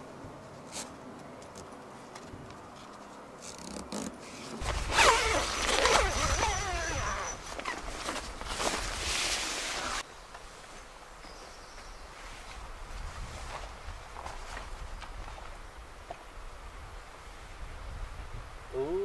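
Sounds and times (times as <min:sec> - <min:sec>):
fabric rustle: 0:02.0 - 0:10.9
zip being pulled: 0:03.4 - 0:08.2.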